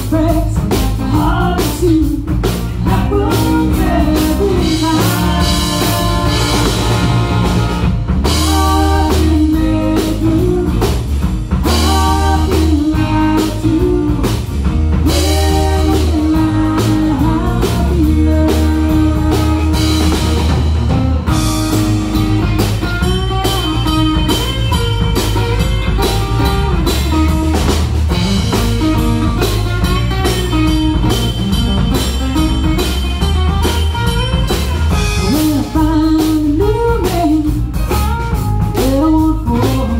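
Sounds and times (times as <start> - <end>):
bass guitar: 0.0 - 39.9
drum kit rock beat: 0.0 - 39.9
electric guitar: 0.0 - 39.9
woman singing into microphone: 35.3 - 37.6, 38.8 - 39.9.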